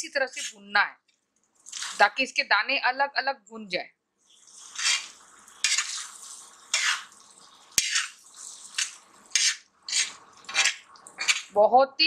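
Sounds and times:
metal spoon scraping on pan: 0.3s - 0.6s, 4.5s - 11.5s.

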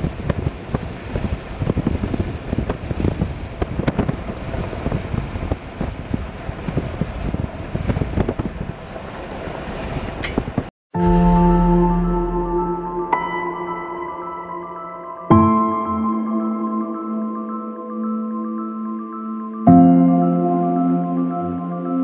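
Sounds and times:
wind buffeting microphone: 0.0s - 10.7s.

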